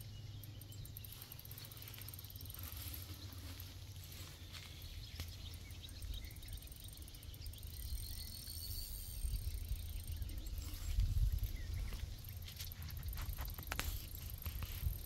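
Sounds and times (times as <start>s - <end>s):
faint chirps: 0.0s - 14.6s
high insect buzz: 1.0s - 4.7s
wind buffeting microphone: 4.8s - 15.0s.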